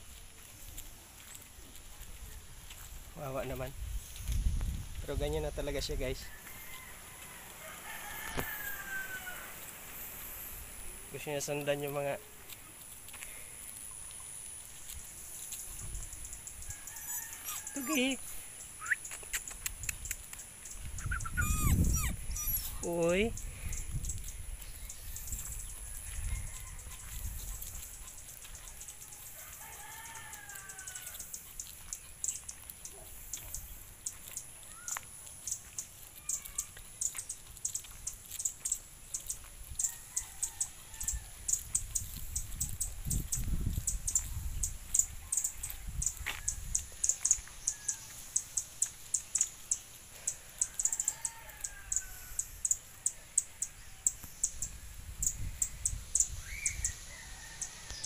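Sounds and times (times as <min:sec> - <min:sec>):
rooster crowing: 0:06.1 - 0:09.8, 0:16.6 - 0:18.2, 0:25.0 - 0:27.8, 0:29.0 - 0:31.4, 0:39.8 - 0:41.6, 0:50.5 - 0:52.6, 0:56.8 - 0:58.0.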